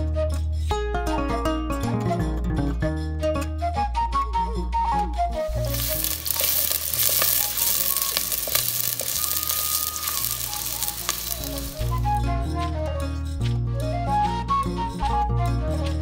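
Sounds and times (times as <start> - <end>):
onions sizzling in hot oil: 5.5 - 12.2.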